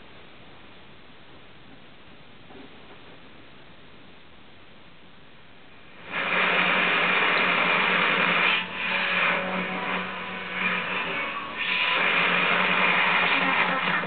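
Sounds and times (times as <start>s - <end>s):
steady hum: 0.0s - 14.0s
radio static hiss: 5.6s - 10.0s, 11.5s - 14.0s
rasping radio signal noise: 5.8s - 14.0s.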